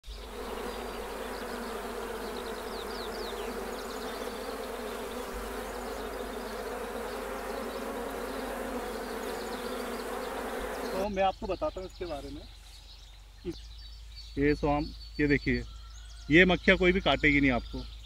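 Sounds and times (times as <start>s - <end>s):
bee swarm buzzing: 0.0s - 11.1s.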